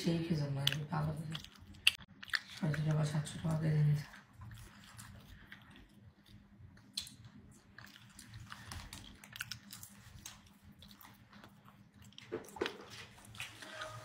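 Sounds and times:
mouth chewing clicks and smacks: 0.6s - 3.0s, 4.2s - 12.7s.

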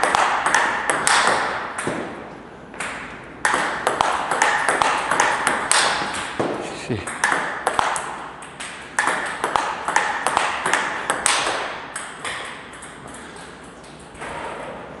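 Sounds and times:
table tennis ball clicking: 2.8s - 6.3s, 7.1s - 14.4s.

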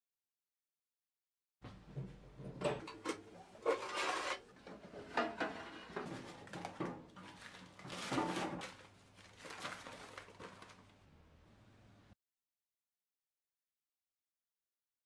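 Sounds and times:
paper scraping and rustling: 3.6s - 10.9s.

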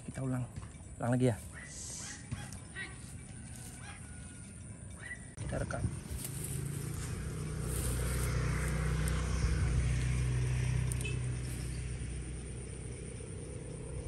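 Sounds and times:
vehicle engine passing by: 5.3s - 14.0s.

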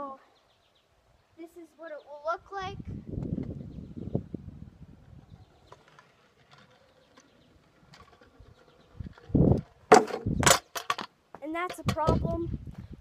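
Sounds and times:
scooter rolling over concrete: 5.1s - 12.5s.

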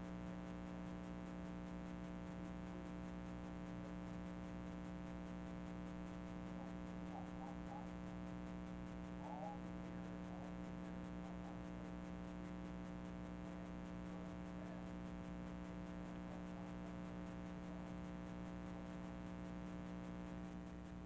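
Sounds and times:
electrical hum: 0.0s - 21.0s
faint indistinct sounds: 6.4s - 17.8s.

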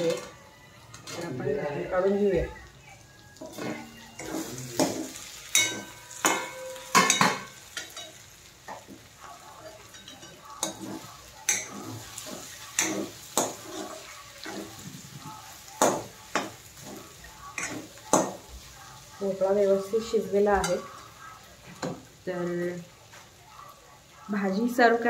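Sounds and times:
metal spoon clinking and scraping pan: 0.0s - 1.4s, 3.4s - 19.1s, 20.0s - 22.1s.

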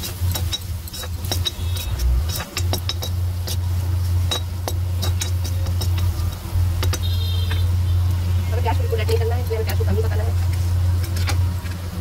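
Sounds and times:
metal spoon scraping steel pan: 0.0s - 3.6s
steady low hum: 0.0s - 12.0s.

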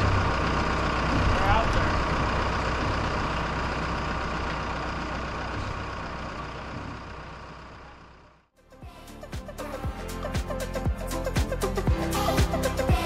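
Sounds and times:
engine humming steadily: 0.0s - 13.0s.

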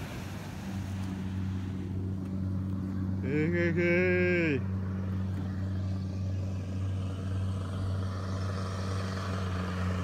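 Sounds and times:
diesel engine droning: 0.0s - 10.0s.

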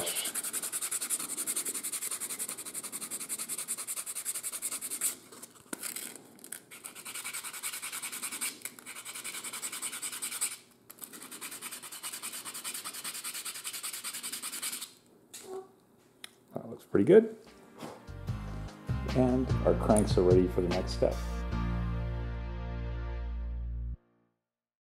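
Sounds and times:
sandpaper scratching wood: 0.0s - 5.3s, 6.7s - 15.0s.

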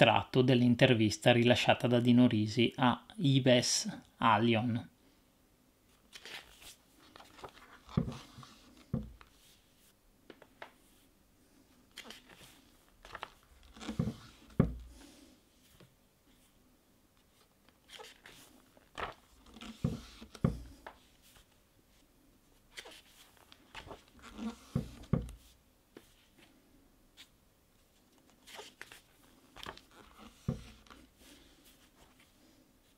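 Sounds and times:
soft thumps of pages: 5.9s - 11.1s, 11.9s - 16.5s, 17.2s - 22.0s, 22.7s - 26.6s, 27.2s - 32.9s
paper pages turning: 6.0s - 11.0s, 11.9s - 14.6s, 17.2s - 21.6s, 22.6s - 26.4s, 27.9s - 32.3s.

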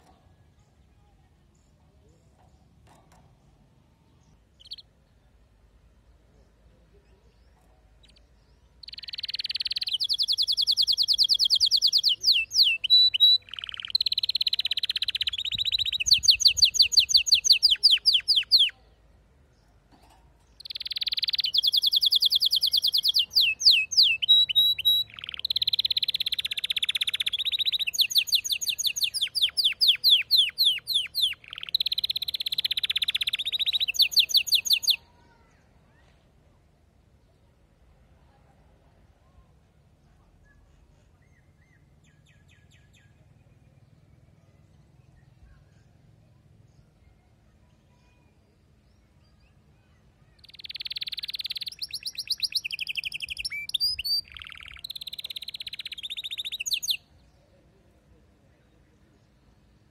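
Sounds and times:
canary singing trills: 1.6s - 5.4s, 6.1s - 19.1s, 20.4s - 35.5s, 49.0s - 57.2s.

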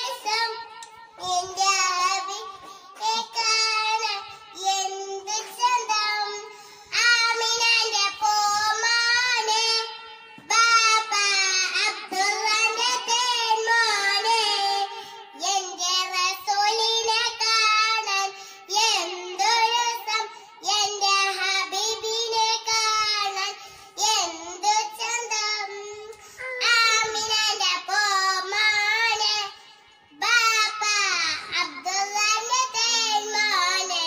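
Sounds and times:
girl singing unaccompanied: 0.0s - 34.0s
girl breathing: 2.5s - 3.0s, 6.5s - 6.9s, 14.9s - 15.2s, 18.4s - 18.7s, 23.6s - 24.0s, 26.2s - 26.5s.

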